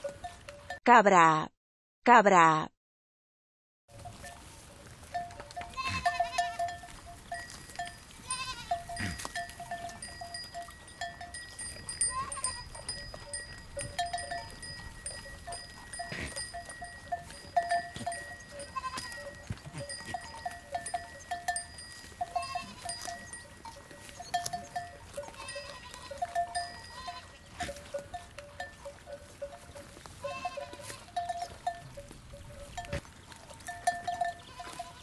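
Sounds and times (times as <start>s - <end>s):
goat bells clanking: 0.0s - 0.8s, 3.9s - 35.0s
goats bleating: 5.6s - 10.2s, 11.8s - 12.9s, 15.9s - 20.6s, 22.2s - 23.4s, 24.1s - 27.9s, 30.1s - 31.8s, 34.1s - 35.0s.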